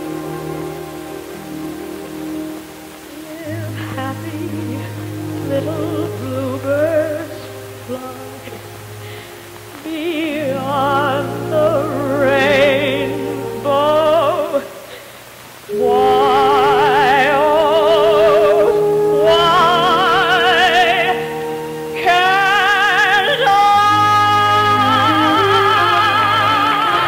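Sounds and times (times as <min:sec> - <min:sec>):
musical accompaniment: 0:00.0 - 0:14.8, 0:15.6 - 0:27.0
woman singing with vibrato: 0:02.2 - 0:27.0.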